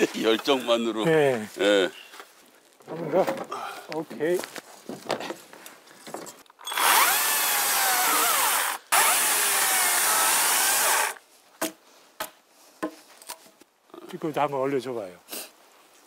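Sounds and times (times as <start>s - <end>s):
electric chainsaw cutting log: 6.7s - 11.2s.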